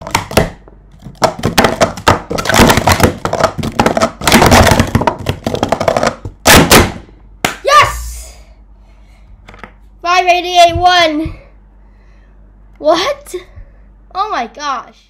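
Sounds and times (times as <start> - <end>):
plastic cups clattering: 0.2 - 6.4.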